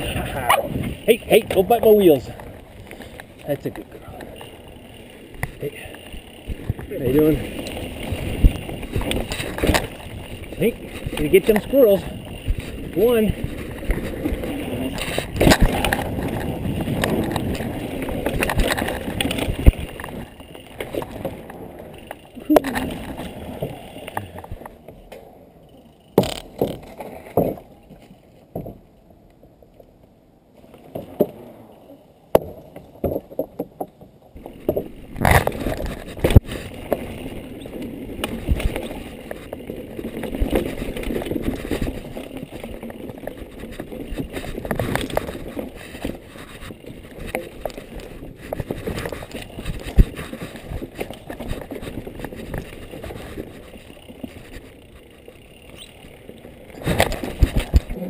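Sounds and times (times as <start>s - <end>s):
bike rattle: 0.0s - 29.0s, 30.6s - 58.0s
mountain bike tyre rumble: 0.0s - 58.0s
bike knocking over bumps: 26.2s - 27.7s.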